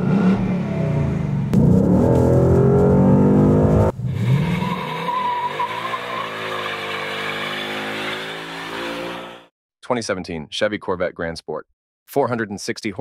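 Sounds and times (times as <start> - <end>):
car engine revving: 0.0 - 9.4.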